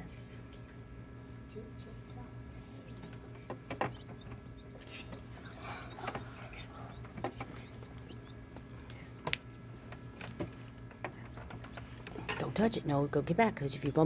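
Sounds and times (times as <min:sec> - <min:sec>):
incubator low hum: 0:00.0 - 0:14.0
chicks peeping: 0:01.9 - 0:09.2, 0:10.9 - 0:12.1.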